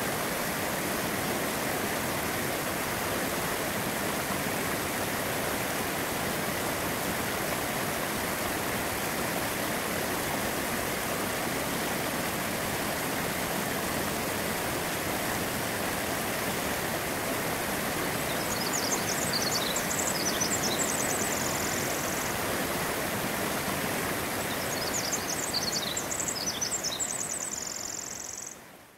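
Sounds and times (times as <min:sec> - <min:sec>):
whitewater rushing: 0:00.0 - 0:26.4.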